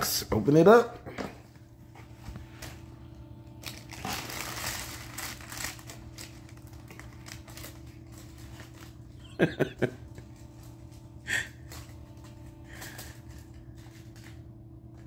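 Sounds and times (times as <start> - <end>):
tissue paper rustling: 3.6 - 9.2.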